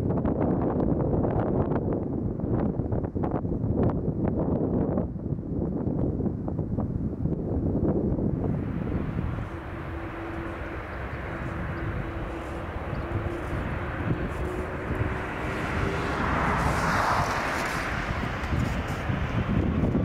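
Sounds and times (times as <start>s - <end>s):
jet engine rumble and hiss: 7.8s - 20.0s.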